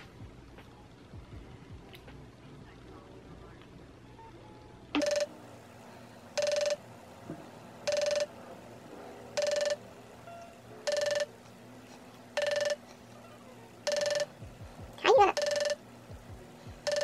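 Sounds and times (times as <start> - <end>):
electronic call ringing tone: 5.0 - 5.4, 6.4 - 6.8, 7.8 - 8.4, 9.4 - 11.4, 12.4 - 12.9, 13.8 - 14.4, 15.2 - 15.8.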